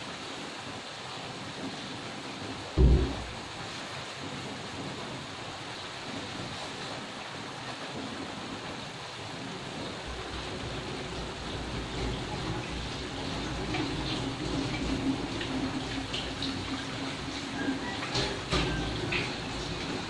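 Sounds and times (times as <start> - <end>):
low thump: 2.8 - 3.5.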